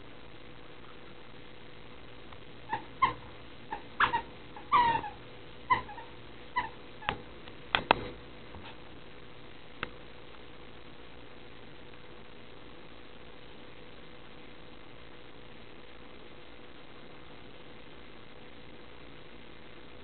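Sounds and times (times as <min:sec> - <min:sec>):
small dogs yipping and whining: 0:02.7 - 0:07.2.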